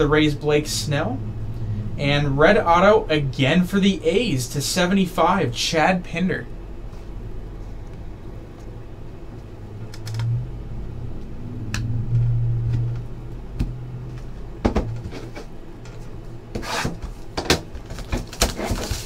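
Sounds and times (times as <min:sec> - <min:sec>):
low hum: 0:00.0 - 0:18.2
plastic wrap scraping and rustling: 0:17.8 - 0:19.0.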